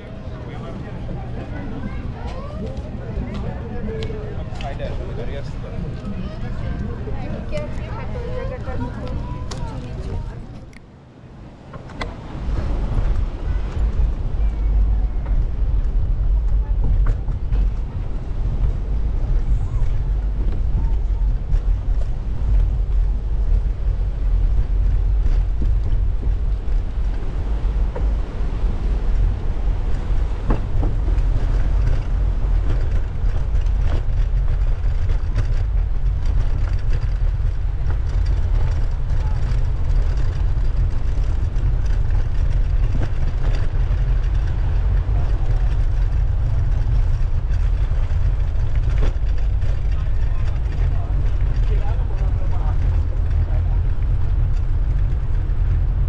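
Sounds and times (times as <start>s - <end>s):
faint murmuring voices: 0.0s - 23.0s
wind buffeting microphone: 0.0s - 56.0s.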